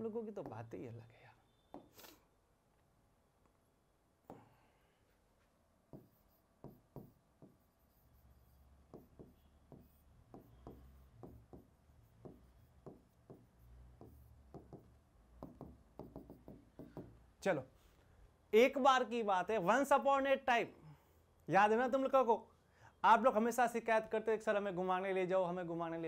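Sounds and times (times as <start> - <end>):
stylus tapping on screen: 1.7 - 2.0, 5.9 - 7.7, 8.9 - 17.2.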